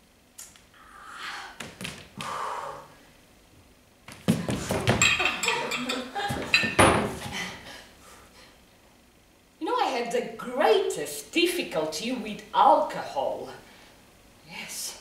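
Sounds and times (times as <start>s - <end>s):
objects clattering on wooden table: 4.2s - 7.2s.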